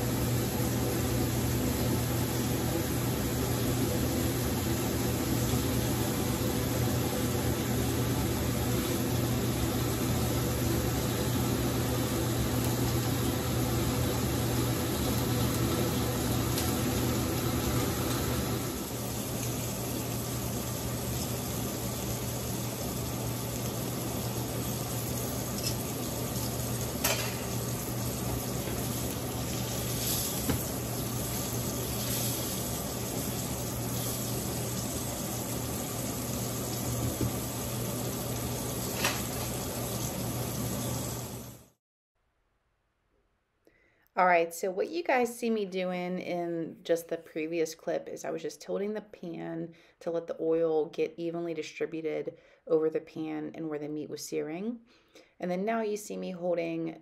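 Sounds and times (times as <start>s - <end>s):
kitchen exhaust fan hum: 0.0s - 41.8s, 44.2s - 57.0s
meat sizzling in a skillet: 1.1s - 41.6s.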